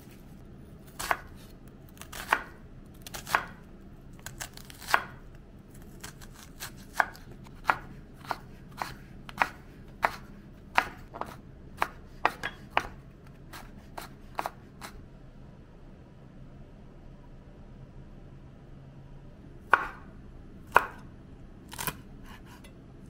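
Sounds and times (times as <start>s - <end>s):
knife chopping on cutting board: 1.0s - 3.6s, 6.1s - 15.0s, 19.7s - 20.1s, 20.7s - 21.0s.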